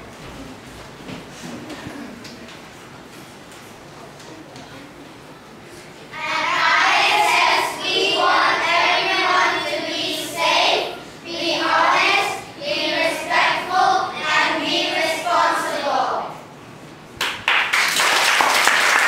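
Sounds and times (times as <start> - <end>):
children singing together: 6.2 - 16.4.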